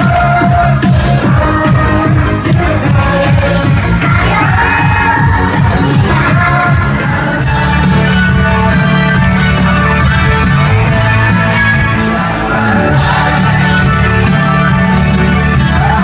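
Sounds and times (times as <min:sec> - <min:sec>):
loud music with singing: 0:00.0 - 0:16.0.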